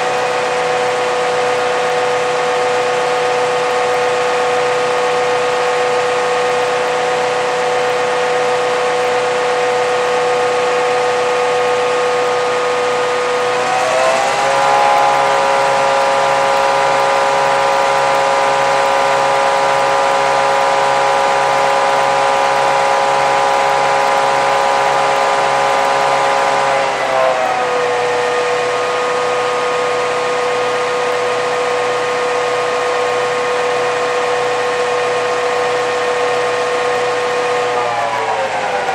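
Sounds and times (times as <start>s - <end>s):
diesel locomotive engine running: 0.0s - 38.9s.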